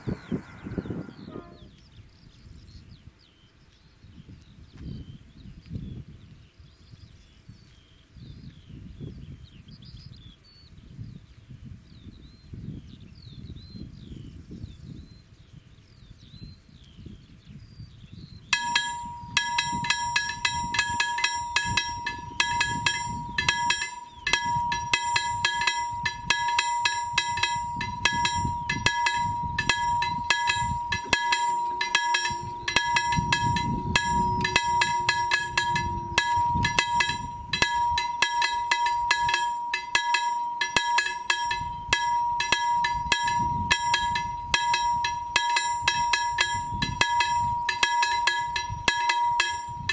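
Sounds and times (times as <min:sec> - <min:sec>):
level crossing warning bell: 0:18.5 - 0:49.9.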